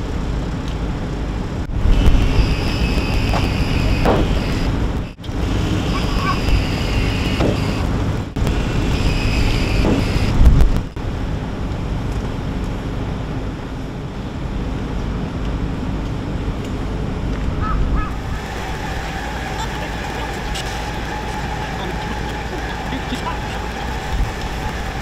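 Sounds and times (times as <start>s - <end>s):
wind noise on microphone: 0.0s - 19.2s, 23.6s - 25.0s
machinery rumble: 0.0s - 25.0s
high whine: 1.6s - 14.1s, 18.0s - 25.0s.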